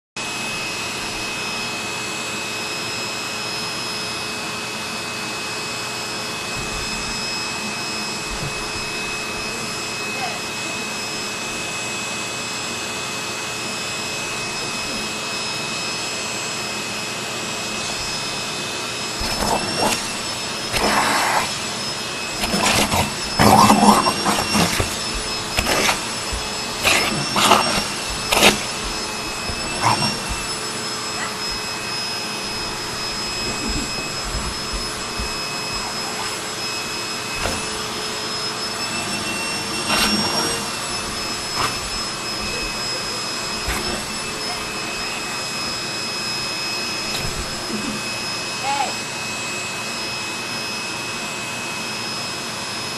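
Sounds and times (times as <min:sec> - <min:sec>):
vacuum cleaner whine: 0:00.2 - 0:52.9
dog biting at vacuum nozzle: 0:06.5 - 0:07.4, 0:08.2 - 0:09.8, 0:19.1 - 0:38.0, 0:38.8 - 0:45.3.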